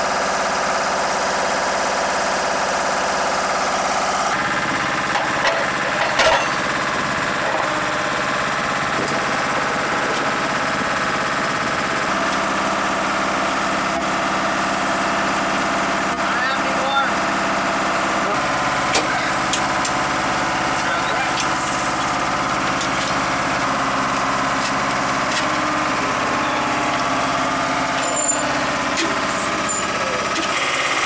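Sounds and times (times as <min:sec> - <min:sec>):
machinery drone with whine: 0:18.2 - 0:31.0.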